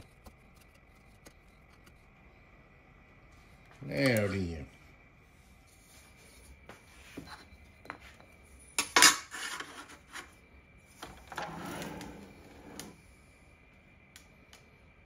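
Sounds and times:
metal scraping on table: 0:09.0 - 0:10.3, 0:11.0 - 0:13.0.

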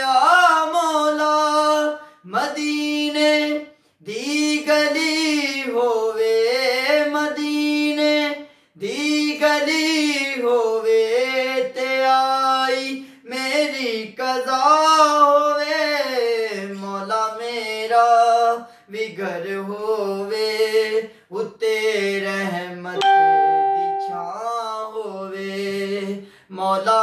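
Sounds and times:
man singing unaccompanied: 0:00.0 - 0:27.0
short breaths: 0:08.4 - 0:08.8, 0:26.2 - 0:26.5.

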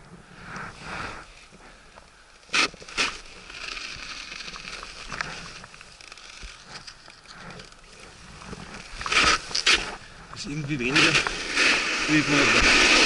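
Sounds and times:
small crackles: 0:00.0 - 0:13.0
board edges scraping over slush: 0:07.6 - 0:13.0.

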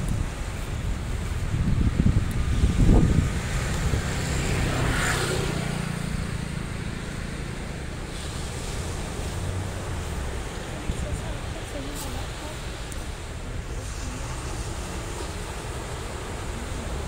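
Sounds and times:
steady low rumble: 0:00.0 - 0:17.0
wind buffeting microphone: 0:00.0 - 0:17.0
broad hiss: 0:07.0 - 0:17.0.

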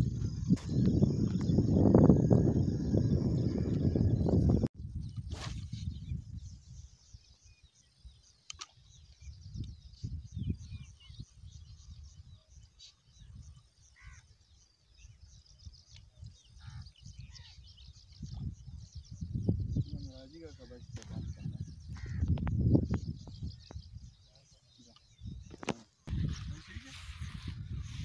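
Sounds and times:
wind rumbling on microphone: 0:00.0 - 0:08.2, 0:08.8 - 0:28.0
small birds chirping: 0:00.0 - 0:28.0.

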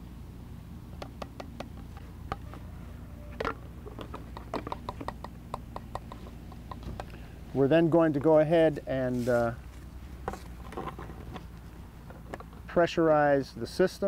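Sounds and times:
low steady hum: 0:00.0 - 0:14.0
plastic containers clicking and tapping: 0:03.4 - 0:07.2.

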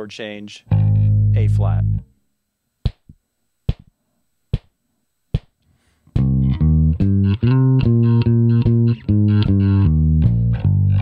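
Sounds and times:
electric bass guitar line: 0:00.7 - 0:02.1, 0:06.1 - 0:11.0.

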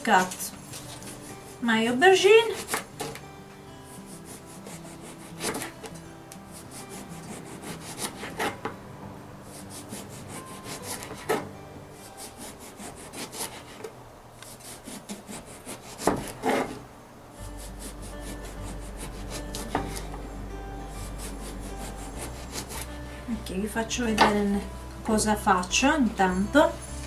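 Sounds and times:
knife slicing vegetable: 0:02.4 - 0:03.2, 0:03.9 - 0:05.9, 0:06.6 - 0:08.6, 0:12.2 - 0:16.8.

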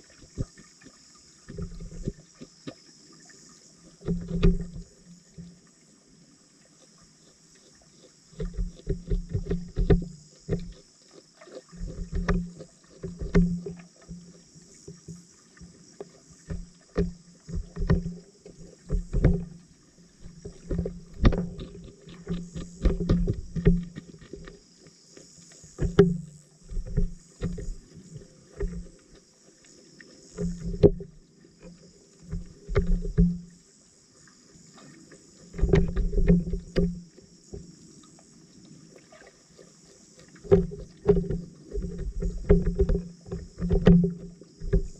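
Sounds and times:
muffled underwater knocks and pops: 0:01.4 - 0:02.8, 0:03.9 - 0:05.6, 0:08.3 - 0:10.9, 0:11.5 - 0:24.6, 0:25.6 - 0:29.2, 0:30.3 - 0:33.6, 0:35.5 - 0:37.7, 0:40.3 - 0:44.9.

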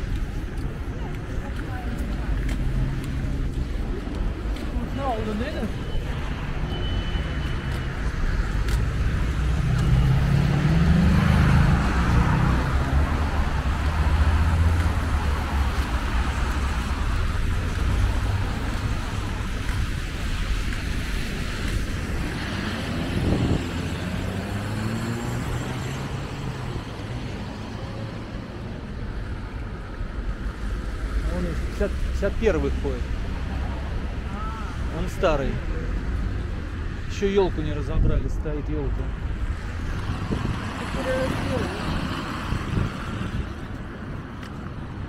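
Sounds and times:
cars passing: 0:00.0 - 0:45.0
low traffic rumble: 0:00.0 - 0:45.0.

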